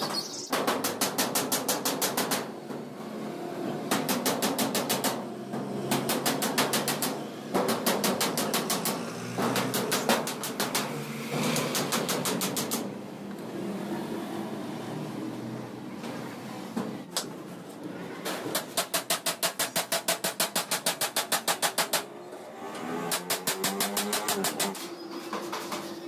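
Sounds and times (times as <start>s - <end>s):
rapid mechanical strikes: 3.9s - 13.0s, 18.5s - 22.1s, 23.0s - 25.9s.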